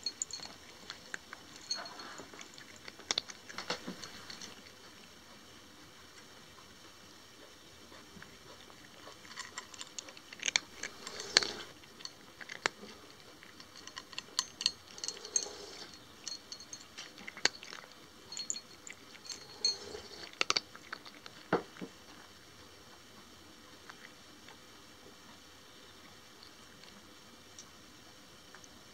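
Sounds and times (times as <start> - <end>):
cat crunching dry kibble: 0.0 - 5.4, 7.9 - 22.4.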